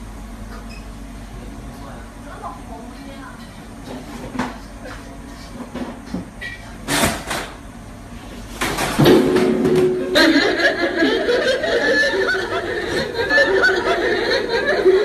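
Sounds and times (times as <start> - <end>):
laughter: 10.0 - 15.0.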